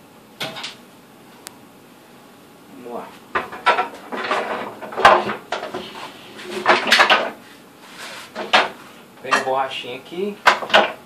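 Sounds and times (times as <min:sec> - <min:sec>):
sheet metal clanking and scraping: 0:03.4 - 0:07.4.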